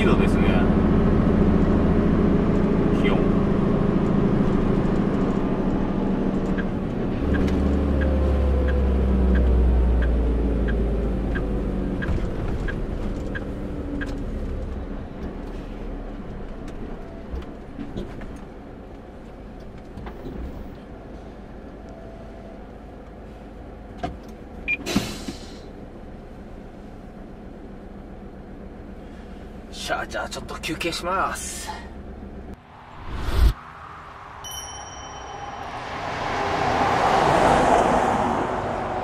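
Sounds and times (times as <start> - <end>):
truck diesel engine slowing: 0.0 - 17.8, 31.1 - 39.0
air brake hiss: 24.8 - 25.7.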